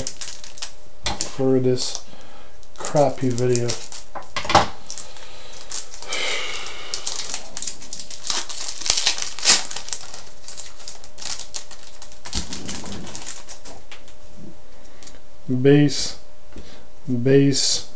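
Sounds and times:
cards rustling and clicking: 0:06.9 - 0:14.2.

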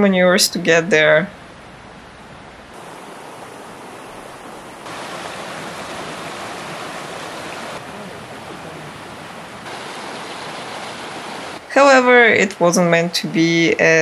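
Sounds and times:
stream rushing over rocks: 0:02.8 - 0:11.7.

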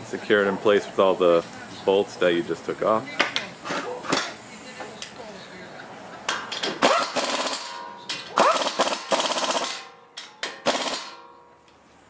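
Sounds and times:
pneumatic impact wrench hammering: 0:06.3 - 0:11.6.

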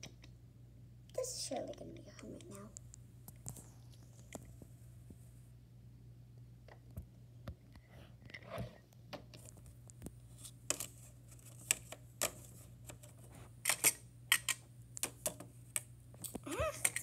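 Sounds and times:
low steady hum: 0:00.0 - 0:17.0
plastic toys clicking and tapping: 0:13.7 - 0:17.0.

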